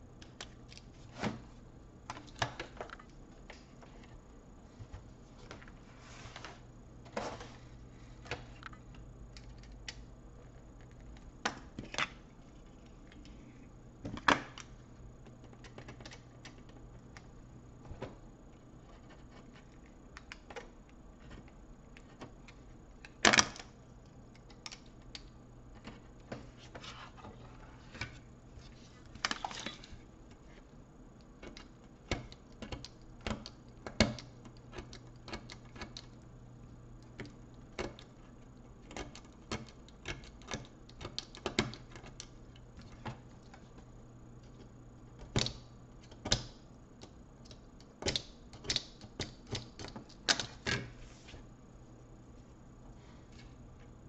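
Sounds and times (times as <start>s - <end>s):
low steady hum: 0.0s - 54.0s
plastic parts clicking and knocking: 44.4s - 50.9s.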